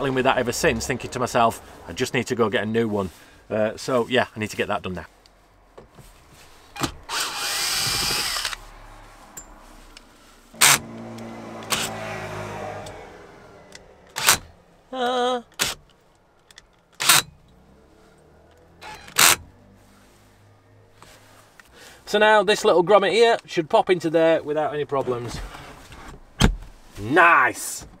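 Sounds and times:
cordless drill whirring: 7.1 - 8.6.

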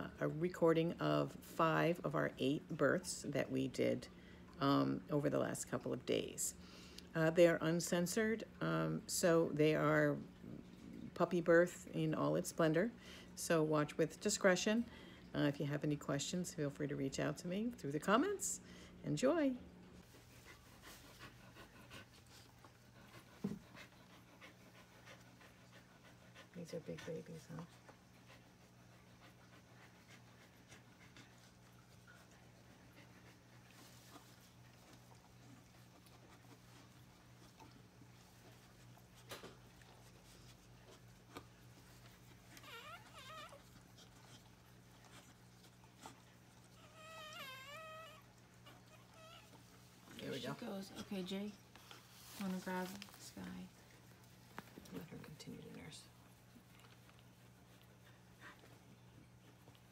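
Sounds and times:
dog panting faintly: 20.0 - 59.9
puppy crying: 42.5 - 43.8, 46.7 - 49.6.

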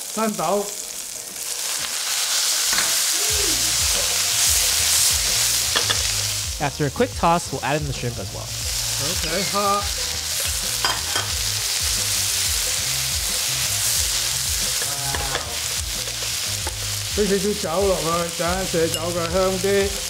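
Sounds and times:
food sizzling in a wok: 0.0 - 20.0.

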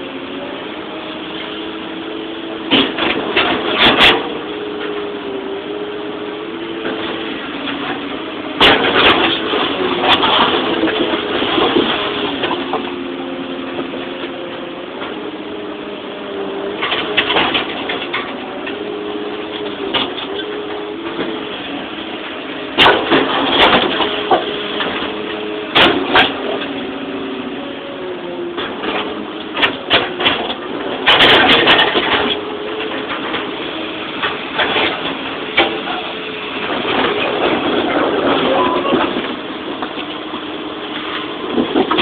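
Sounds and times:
excavator engine and hydraulics: 0.0 - 42.0
steel bucket clunking on rocks: 41.0 - 42.0.

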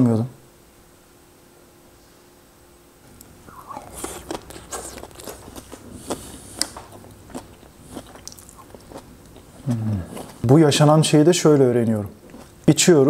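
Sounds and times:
wet chewing with mouth clicks: 3.2 - 10.5, 12.2 - 12.7.

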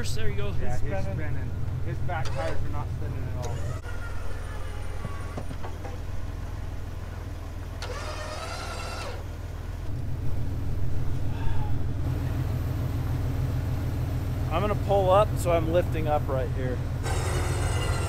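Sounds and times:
vehicle engines idling: 0.0 - 18.0.

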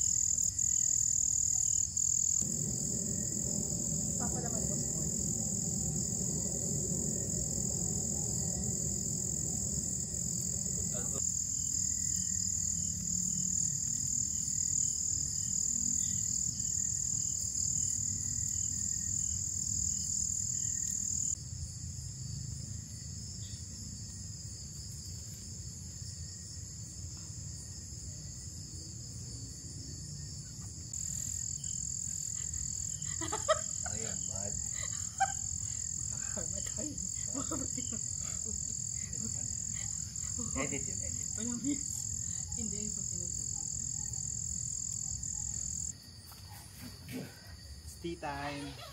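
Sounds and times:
insects and frogs droning: 0.0 - 48.9
low rumble: 2.4 - 11.2.

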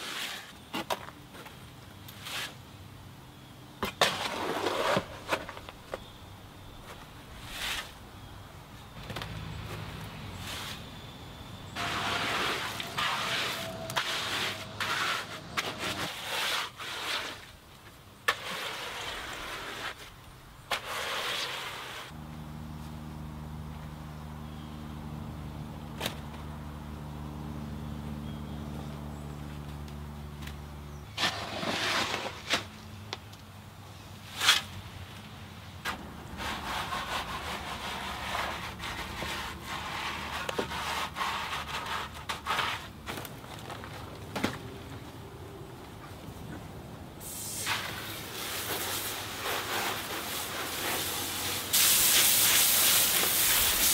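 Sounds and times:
shovel scraping wet concrete: 0.0 - 0.9, 2.2 - 2.6, 3.8 - 5.6, 7.4 - 8.3, 10.3 - 10.9, 11.8 - 17.5, 18.2 - 20.1, 20.7 - 22.1, 31.1 - 32.8, 34.3 - 34.7, 35.8 - 43.2.

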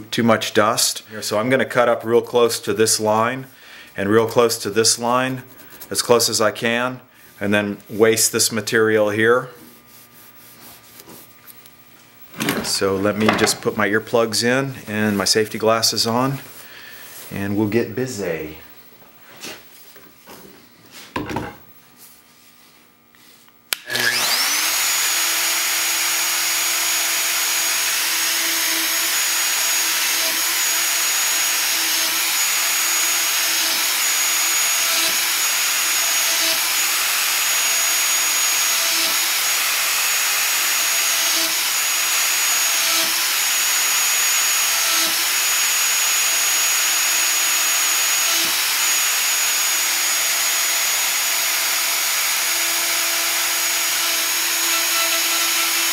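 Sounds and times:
router bit cutting wood: 12.3 - 14.0, 23.7 - 55.9
plunge router motor running: 23.7 - 55.9.

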